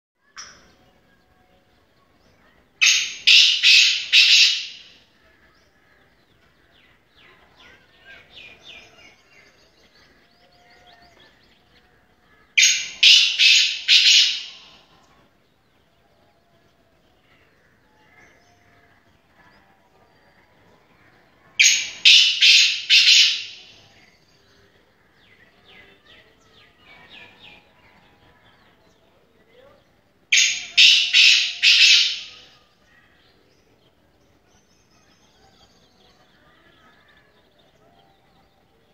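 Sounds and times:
bird calling harsh ringing notes: 0:02.8 - 0:05.1, 0:12.3 - 0:14.9, 0:21.6 - 0:24.3, 0:30.3 - 0:32.9.

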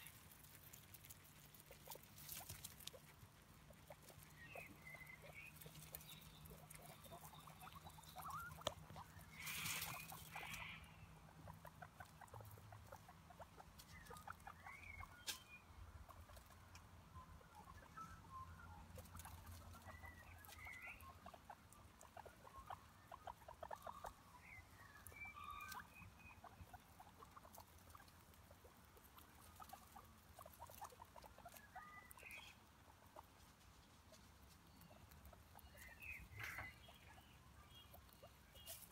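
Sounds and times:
rustling over dry leaves: 0:00.0 - 0:07.4, 0:09.0 - 0:10.8
guinea pigs nibbling grass: 0:00.0 - 0:38.9.

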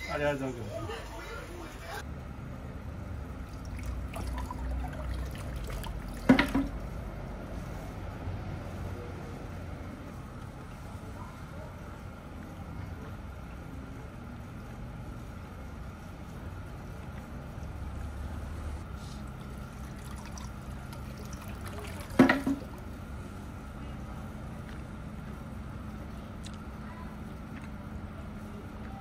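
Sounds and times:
water trickling into stone basin: 0:03.4 - 0:06.6, 0:19.2 - 0:22.9.

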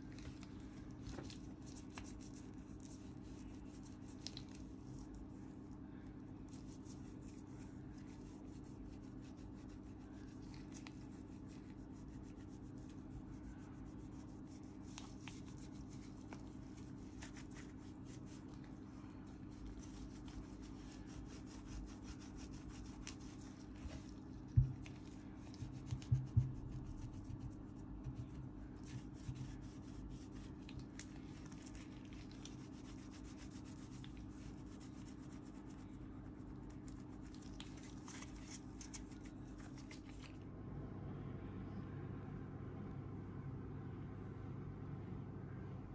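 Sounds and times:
steady low hum: 0:00.0 - 0:45.9.

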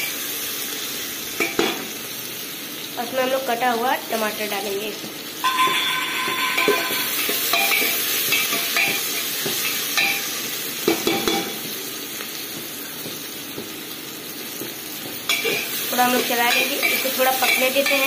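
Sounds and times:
onions sizzling in oil: 0:00.0 - 0:18.0.

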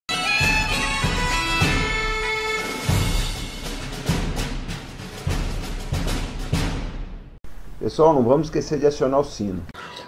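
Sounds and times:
drum beats: 0:00.1 - 0:07.4.

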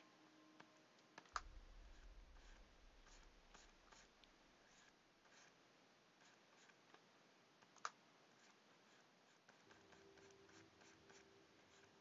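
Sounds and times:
stylus scratching on tablet: 0:01.8 - 0:05.6, 0:06.2 - 0:06.8, 0:08.3 - 0:12.0.

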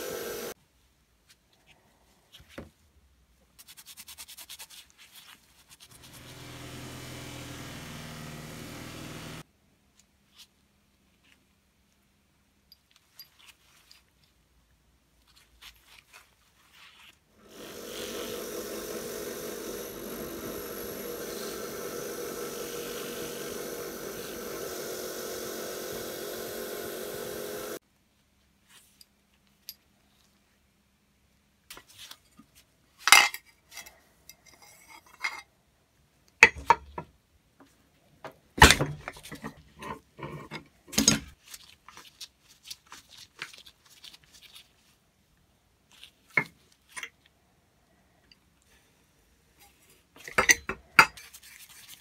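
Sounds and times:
drill press buffing metal: 0:00.0 - 0:00.6, 0:06.0 - 0:09.4, 0:17.4 - 0:27.8.

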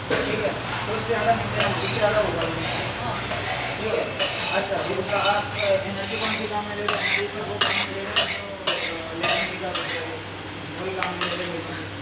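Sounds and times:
metal scraper scraping a pan: 0:01.6 - 0:10.1.

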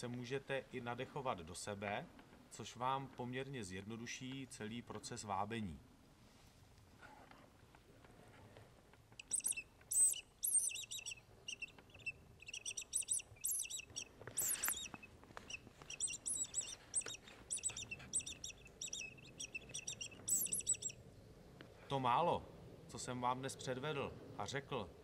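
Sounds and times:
mouse-squeak predator call squeaks: 0:09.2 - 0:21.0.

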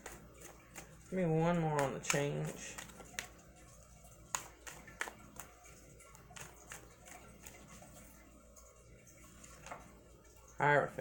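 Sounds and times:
cards being shuffled: 0:00.0 - 0:03.4, 0:04.3 - 0:05.6.

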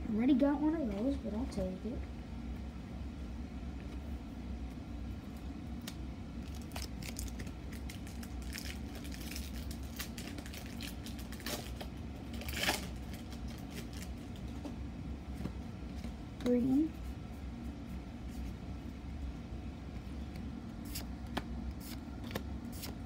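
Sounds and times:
foil wrapper crinkling: 0:06.4 - 0:14.5.

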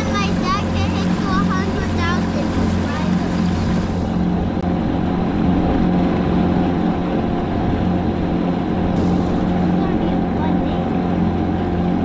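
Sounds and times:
outboard motor humming: 0:00.0 - 0:12.0.

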